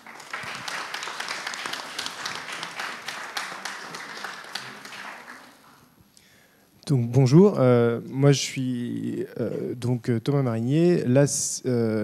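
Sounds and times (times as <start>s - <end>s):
audience applause: 0.0s - 5.8s.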